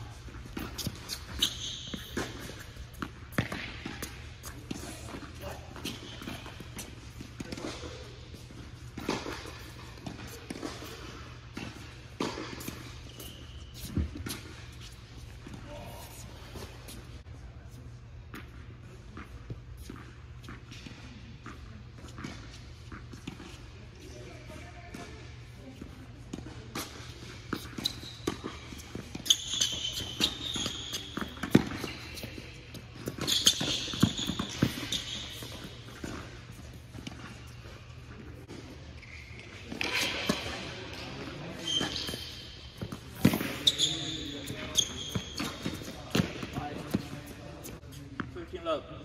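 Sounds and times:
sneakers squeaking on court: 0:00.0 - 0:17.5, 0:18.2 - 0:48.6
ball bouncing on court: 0:00.2 - 0:08.1, 0:27.5 - 0:37.4, 0:39.6 - 0:47.4
racquets striking tennis ball: 0:00.2 - 0:15.3.

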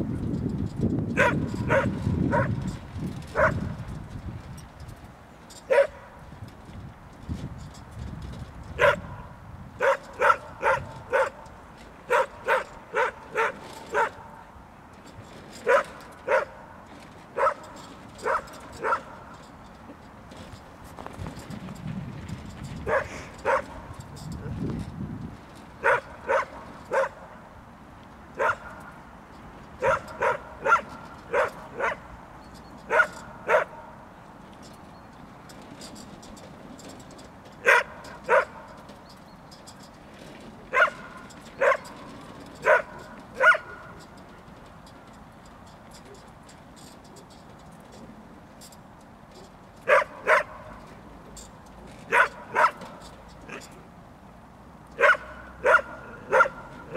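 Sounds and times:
dog barking: 0:01.2 - 0:02.5, 0:03.4 - 0:03.6, 0:05.7 - 0:06.0, 0:08.8 - 0:09.1, 0:09.8 - 0:11.4, 0:12.1 - 0:14.3, 0:15.7 - 0:16.6, 0:17.4 - 0:19.1, 0:22.9 - 0:23.7, 0:25.8 - 0:27.2, 0:28.4 - 0:28.7, 0:29.8 - 0:32.0, 0:32.9 - 0:33.9, 0:37.6 - 0:38.6, 0:40.7 - 0:41.9, 0:42.6 - 0:43.8, 0:49.9 - 0:50.6, 0:52.1 - 0:52.8, 0:55.0 - 0:56.7.

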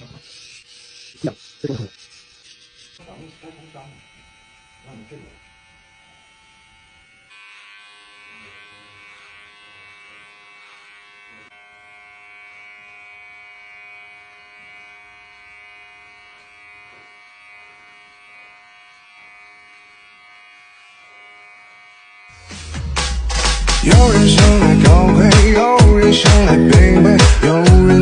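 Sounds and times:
electric hair clipper buzzing: 0:00.0 - 0:28.0.

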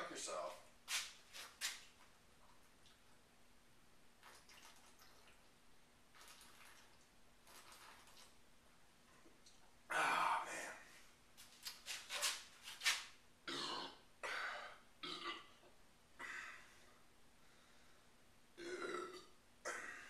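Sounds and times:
man belching: 0:13.4 - 0:15.6, 0:18.6 - 0:19.9.

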